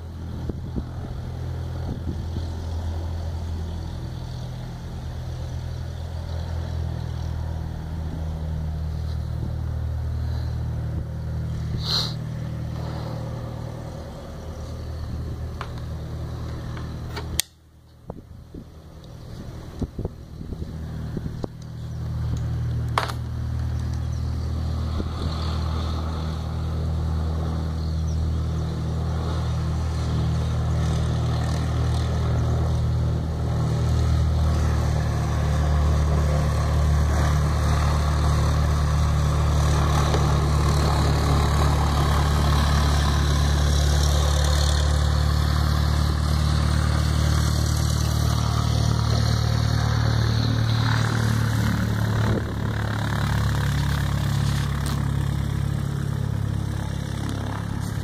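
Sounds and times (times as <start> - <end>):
light aircraft engine droning: 0.0 - 58.0.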